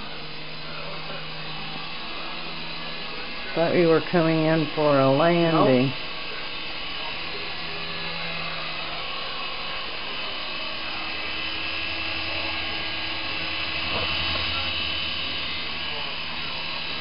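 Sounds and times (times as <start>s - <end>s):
toy helicopter rotors whirring: 0.0s - 17.0s.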